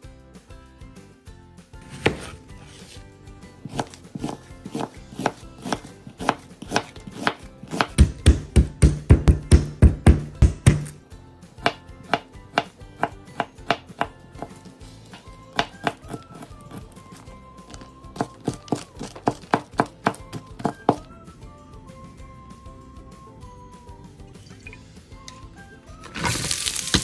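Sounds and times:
knife chopping on cutting board: 1.8s - 3.0s, 3.6s - 11.0s, 11.6s - 21.0s.

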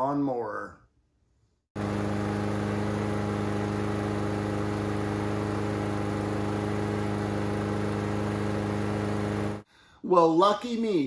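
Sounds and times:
lawn mower engine running: 1.8s - 9.6s.

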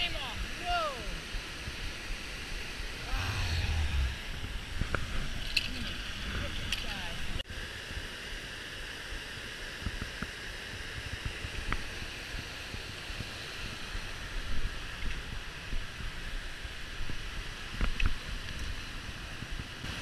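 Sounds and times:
waterfall and river rapids rushing: 0.4s - 5.3s
wind buffeting on microphone: 3.0s - 7.4s.

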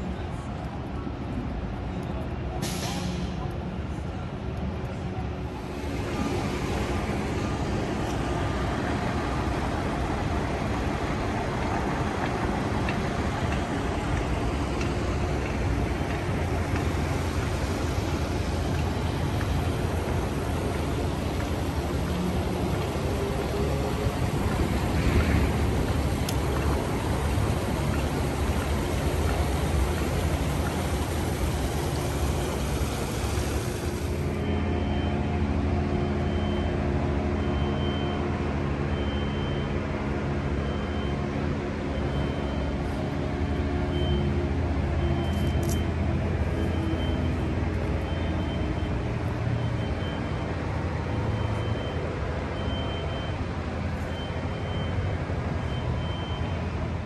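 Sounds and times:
large vehicle engine humming: 0.0s - 57.0s
fountain water rushing: 5.6s - 34.4s
reversing alarm beeping: 31.6s - 57.0s.

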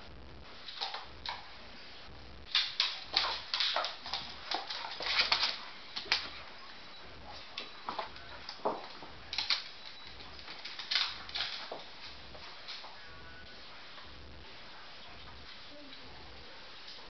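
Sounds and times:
dog claws clicking on hard floor: 0.6s - 1.5s, 2.5s - 6.4s, 7.4s - 12.9s.

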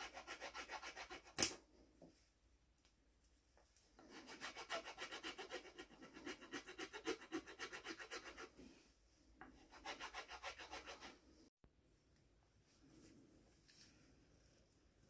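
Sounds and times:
file rasping on wood: 0.0s - 1.4s, 4.0s - 8.6s, 9.6s - 11.2s.

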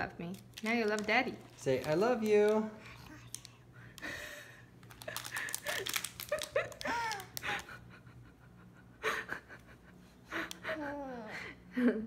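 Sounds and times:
toddler babbling: 10.8s - 11.4s.

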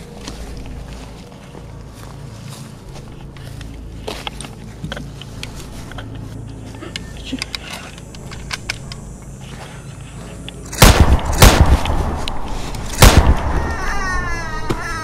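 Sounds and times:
shotgun shots echoing: 10.8s - 13.9s
short falling calls: 13.0s - 15.0s.

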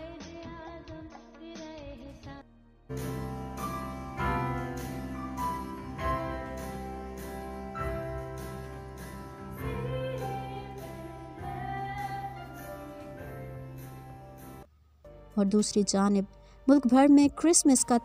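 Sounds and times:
woman singing: 0.0s - 2.4s, 9.6s - 13.1s
electronic keyboard: 2.9s - 14.7s
acoustic guitar: 2.9s - 15.8s.

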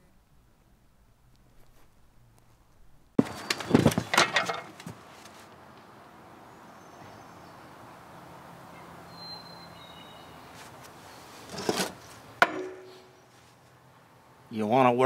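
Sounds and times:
faint high bird chirps: 8.7s - 11.2s.

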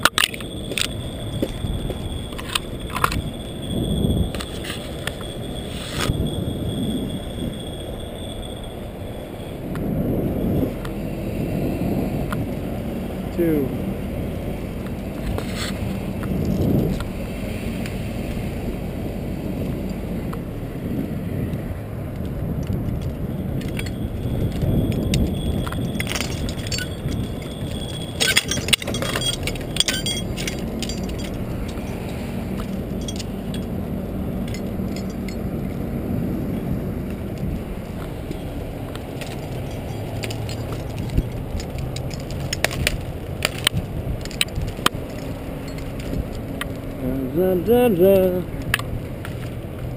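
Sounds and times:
chain and rigging clinking: 0.0s - 9.5s, 22.8s - 35.8s, 37.1s - 49.6s
steady low drone: 8.9s - 43.4s.

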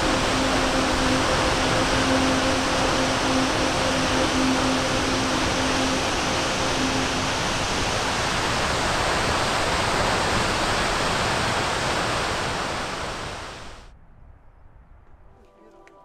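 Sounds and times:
rushing outdoor ambience: 0.0s - 14.0s.

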